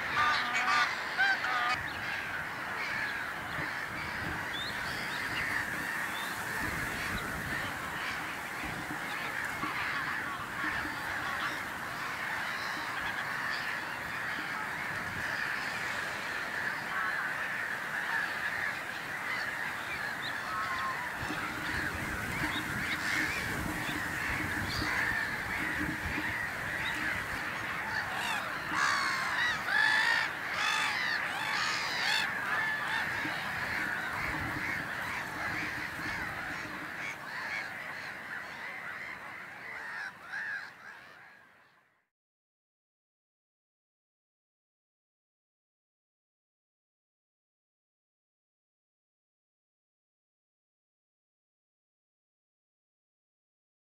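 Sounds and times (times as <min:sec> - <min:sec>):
gulls calling: 0:00.0 - 0:41.5.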